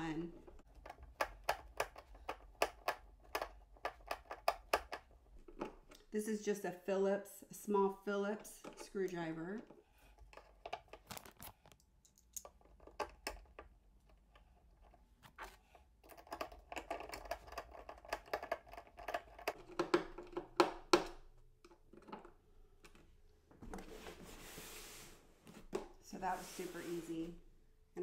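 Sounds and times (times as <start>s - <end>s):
screwdriver clicking and scraping: 9.6s - 20.4s
rustling scrape: 23.8s - 27.4s.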